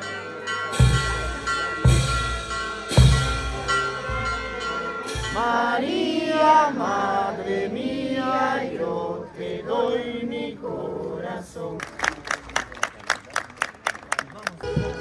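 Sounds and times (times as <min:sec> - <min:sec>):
drum stroke: 0:00.8 - 0:05.4
voices singing a hymn: 0:05.2 - 0:11.9.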